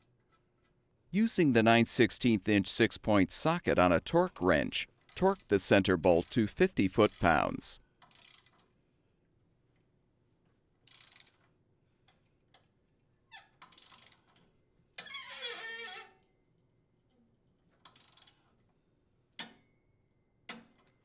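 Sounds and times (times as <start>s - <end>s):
torque wrench ratchet clicking: 8.0s - 8.7s, 10.9s - 11.4s, 13.6s - 14.3s.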